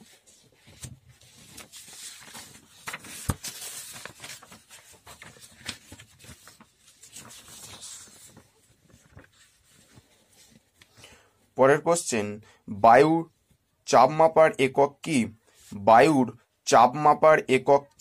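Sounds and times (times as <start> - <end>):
paper rustling: 0.0 - 11.0.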